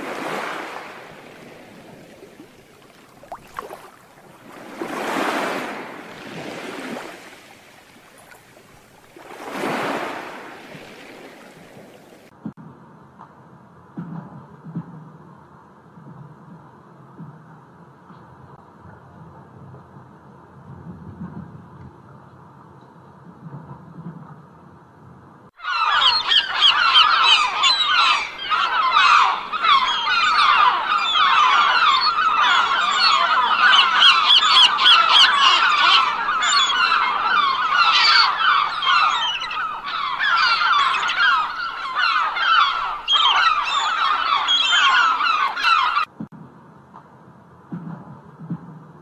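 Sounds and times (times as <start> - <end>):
geese honking: 25.6 - 46.1.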